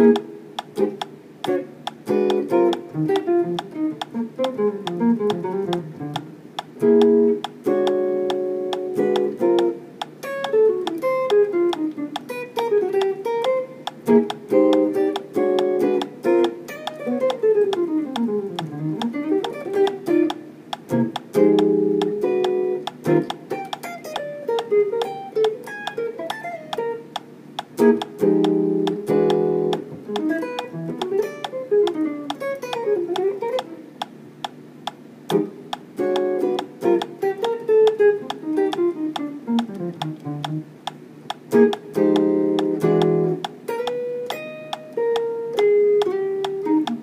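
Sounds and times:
electric guitar single-note lines: 0:00.0 - 0:47.0
strummed guitar chords: 0:00.0 - 0:47.0.

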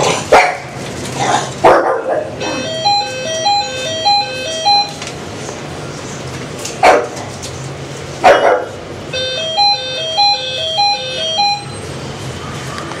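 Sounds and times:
puppy barking: 0:00.3 - 0:00.8, 0:01.6 - 0:02.6, 0:06.8 - 0:07.2, 0:08.2 - 0:08.8
electronic beeping jingle: 0:02.4 - 0:05.0, 0:09.2 - 0:11.9.

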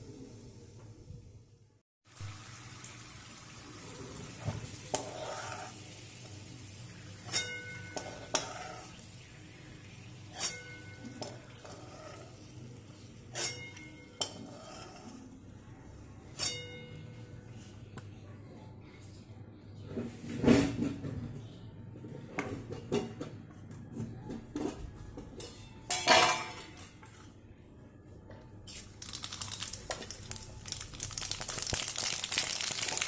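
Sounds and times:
peanuts sizzling in oil: 0:02.1 - 0:13.2, 0:29.0 - 0:33.0
spatula scraping pan: 0:04.8 - 0:05.8, 0:07.2 - 0:09.2, 0:10.2 - 0:12.6, 0:13.3 - 0:15.4.

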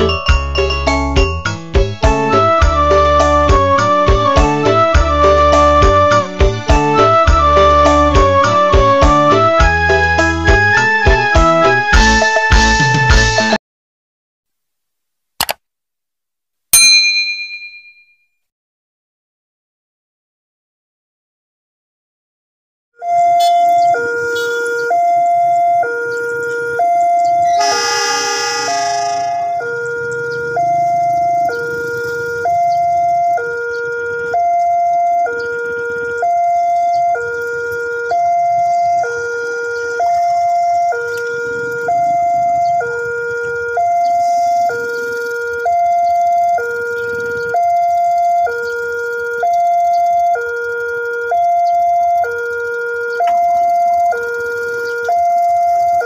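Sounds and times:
two-tone crossing warning alarm: 0:23.0 - 0:56.0
horn blast: 0:27.6 - 0:29.8.

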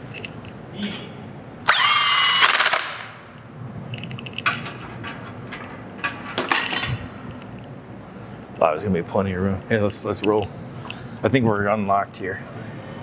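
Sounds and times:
impact wrench whine and rattle: 0:01.7 - 0:03.2.

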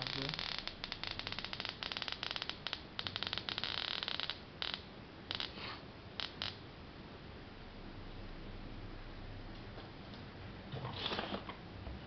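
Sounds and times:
electric arc crackling clicks: 0:00.0 - 0:05.6, 0:06.2 - 0:06.6
faint steady hum: 0:00.0 - 0:12.0.

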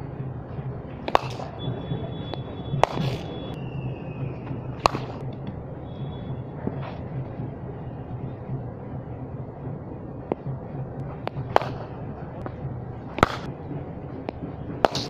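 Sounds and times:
steady low hum: 0:00.0 - 0:15.0
cricket bat hitting ball: 0:01.0 - 0:03.6, 0:04.6 - 0:05.2, 0:11.2 - 0:12.1, 0:13.1 - 0:13.5.

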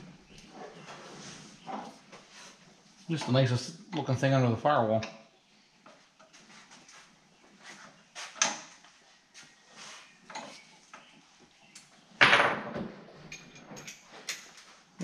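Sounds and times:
tools and metal parts clinking: 0:12.2 - 0:14.7.

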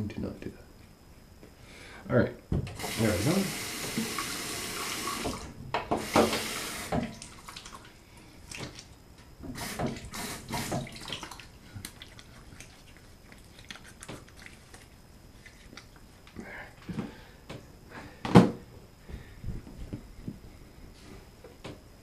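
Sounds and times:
hands splashing water: 0:10.8 - 0:15.9
water dripping: 0:10.8 - 0:15.9.

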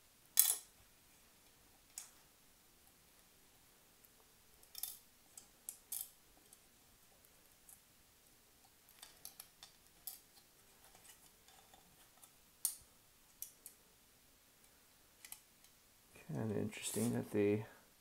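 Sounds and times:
small metal parts clicking: 0:00.4 - 0:00.7, 0:04.6 - 0:06.2.

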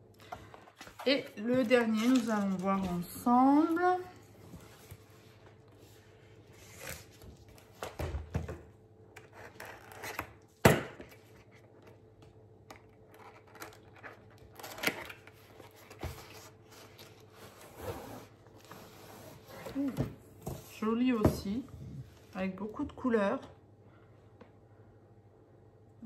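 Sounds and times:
cardboard rubbing and scraping: 0:15.6 - 0:20.7.

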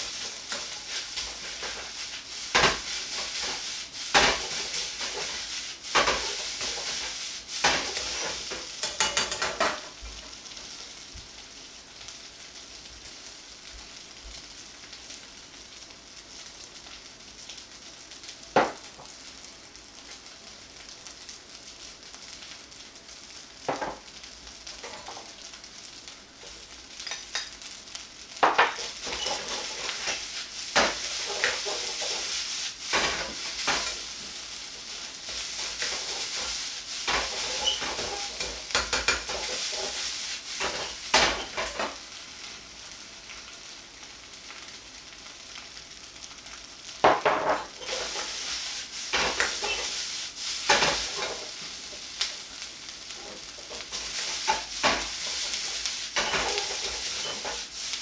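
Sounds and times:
ladle clanking and scraping wok: 0:00.0 - 0:10.4, 0:27.0 - 0:27.6, 0:28.4 - 0:42.0, 0:47.1 - 0:52.2, 0:53.1 - 0:58.0
rice sizzling in a wok: 0:00.0 - 0:58.0.

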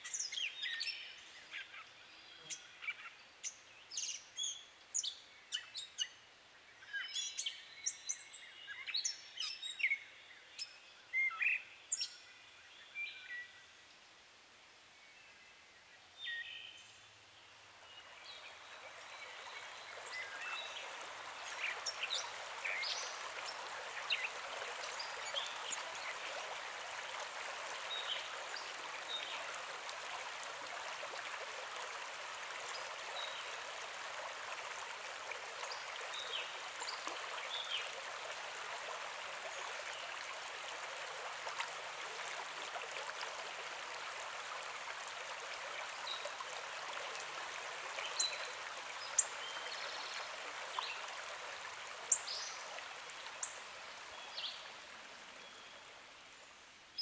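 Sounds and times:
stream running over rocks: 0:14.2 - 0:57.0.

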